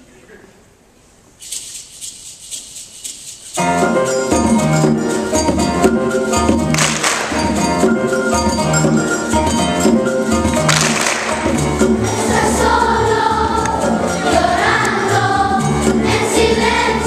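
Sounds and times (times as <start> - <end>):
shaker rattling: 1.3 - 5.5
percussion crash: 1.4 - 12.6
conga drum beat: 1.5 - 15.2
piano: 3.5 - 17.0
double bass: 3.6 - 17.0.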